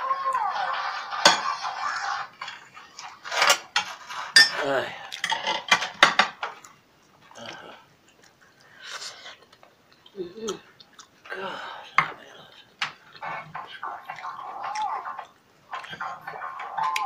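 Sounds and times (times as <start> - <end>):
ceramic plate clinking and scraping: 0.8 - 6.4.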